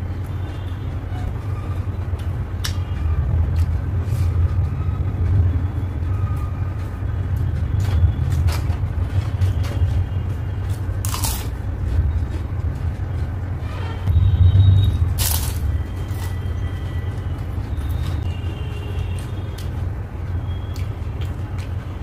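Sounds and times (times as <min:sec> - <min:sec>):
steady low rumble: 0:01.3 - 0:18.4.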